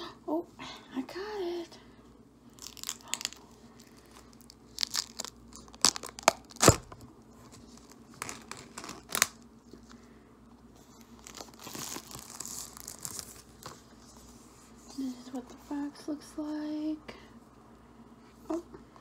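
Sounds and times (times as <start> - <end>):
plastic film rustling: 2.5 - 9.4, 10.9 - 14.4
plastic shrink wrap crinkling: 2.5 - 9.9, 10.8 - 14.2.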